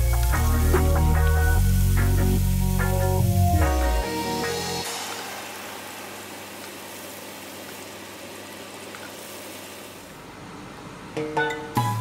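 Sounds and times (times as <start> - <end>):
prawns sizzling in hot oil: 0.0 - 10.1.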